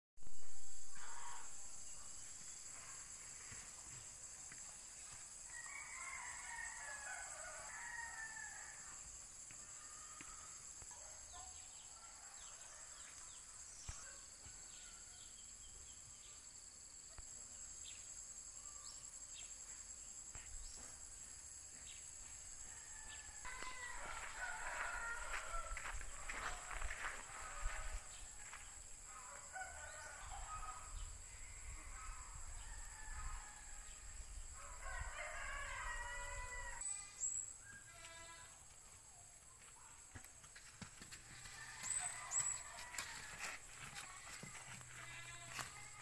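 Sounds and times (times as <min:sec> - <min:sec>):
rooster crowing: 0:05.5 - 0:09.0, 0:22.6 - 0:28.2, 0:29.3 - 0:31.0, 0:31.9 - 0:34.0, 0:34.6 - 0:36.9, 0:41.4 - 0:43.6.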